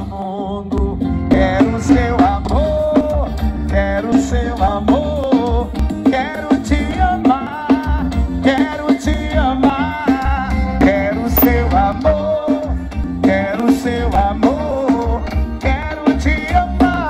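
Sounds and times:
drums: 0:00.0 - 0:17.0
heavy pulsing bass: 0:00.7 - 0:05.0.

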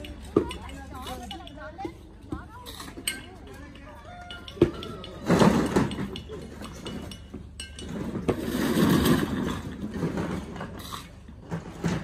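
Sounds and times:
building materials and tools clinking: 0:00.0 - 0:12.0
gritty scraping: 0:05.2 - 0:12.0.

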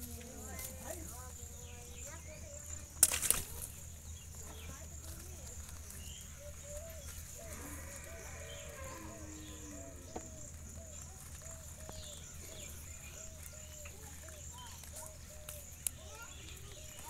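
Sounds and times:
pigeons cooing: 0:05.4 - 0:16.8.

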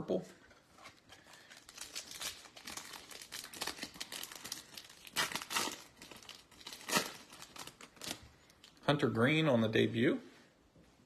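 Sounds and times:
foil wrapper crinkling: 0:00.8 - 0:08.9
foil wrapper ripping: 0:01.3 - 0:08.8.

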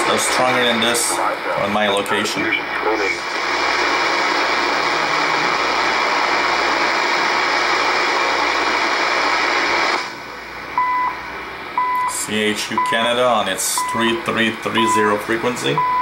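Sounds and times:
radio static hiss: 0:00.0 - 0:16.0
short time signal beeps: 0:15.8 - 0:16.0.

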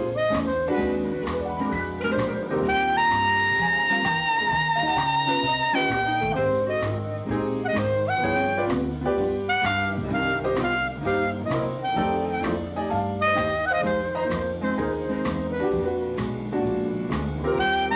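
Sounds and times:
bass and drums: 0:00.0 - 0:17.9
horn melody: 0:00.0 - 0:17.9
upbeat jazz music: 0:00.0 - 0:17.9.

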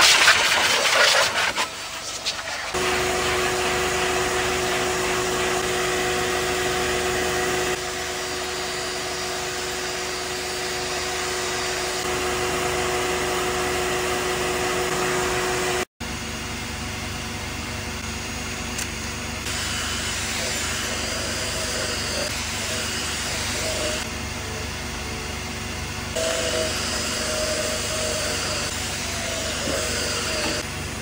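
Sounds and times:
vacuum motor whining: 0:02.7 - 0:15.9, 0:18.7 - 0:24.6, 0:26.1 - 0:31.0.

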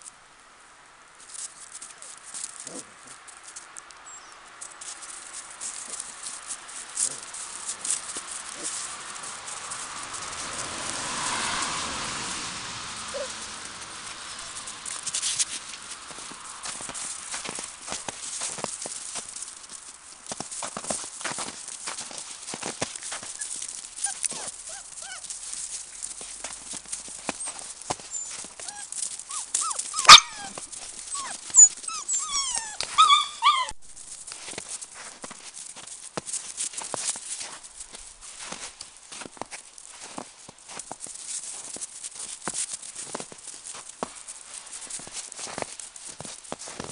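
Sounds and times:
paws crunching in snow: 0:01.2 - 0:46.9
puppies yelping and whining: 0:13.1 - 0:13.4, 0:23.2 - 0:25.4, 0:27.3 - 0:33.8.

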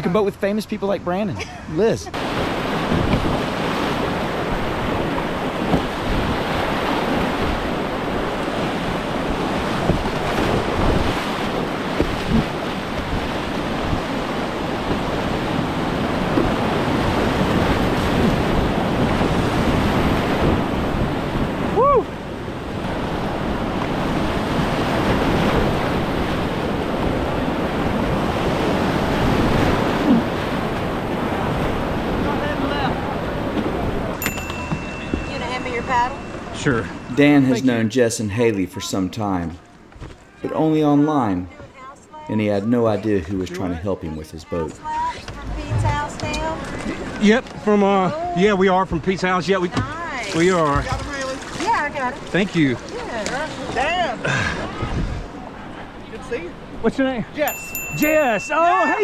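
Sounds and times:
river rapids rushing: 0:57.3 - 0:59.0.

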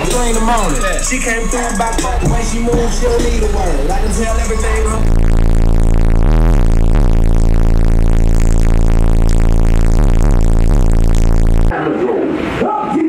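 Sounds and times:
subwoofer low bass note: 0:00.0 - 0:11.7.

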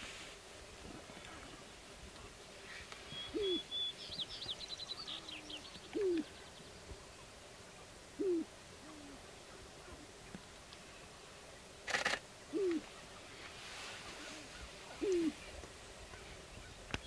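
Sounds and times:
soft grouse coos: 0:00.7 - 0:03.7, 0:05.0 - 0:17.0
grouse hooting: 0:02.7 - 0:03.7, 0:08.2 - 0:10.1, 0:11.9 - 0:15.5.

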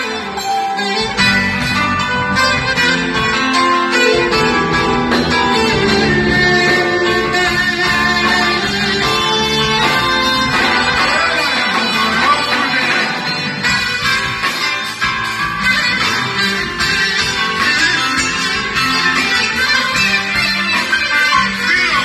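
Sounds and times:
clarinet melody: 0:00.4 - 0:12.5, 0:13.3 - 0:22.0
plucked strings: 0:00.6 - 0:14.6.

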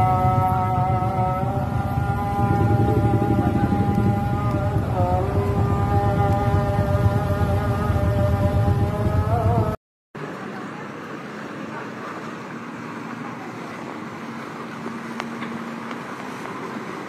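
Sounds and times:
faint engine hum: 0:00.0 - 0:17.0
vehicles passing on wet road: 0:10.2 - 0:17.0.

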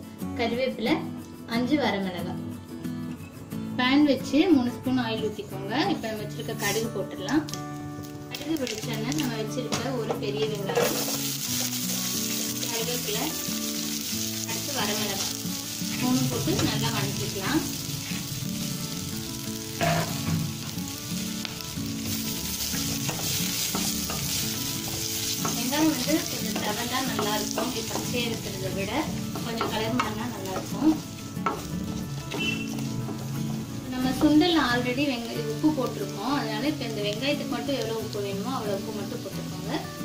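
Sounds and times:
food sizzling in hot oil: 0:05.8 - 0:40.0
spatula scraping and tapping pan: 0:10.0 - 0:11.3, 0:19.7 - 0:20.6, 0:22.1 - 0:28.4, 0:29.1 - 0:33.6.

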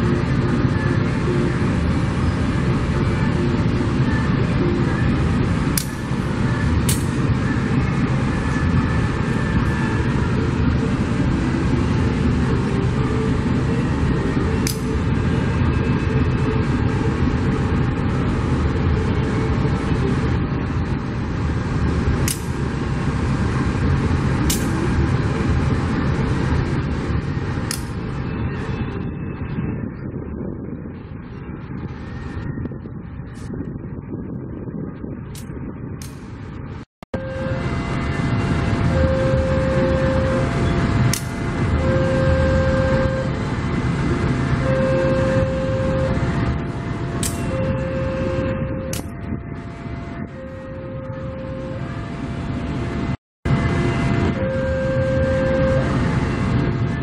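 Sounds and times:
train wheels rumbling on rails: 0:00.0 - 0:57.0
sharp metal clanks: 0:47.2 - 0:47.5.

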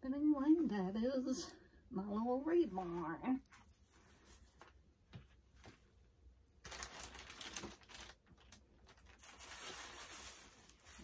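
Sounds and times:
plastic bag rustling: 0:06.6 - 0:11.0.

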